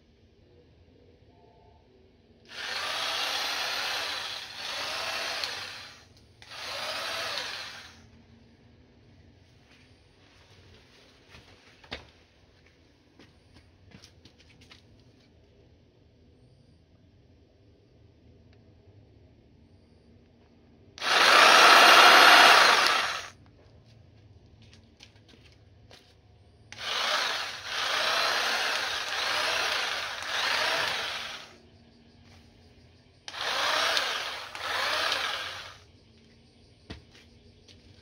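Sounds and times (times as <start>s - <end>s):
electric hedge trimmer whining: 2.5s - 8.0s, 21.0s - 23.3s, 26.8s - 31.6s, 33.3s - 35.8s.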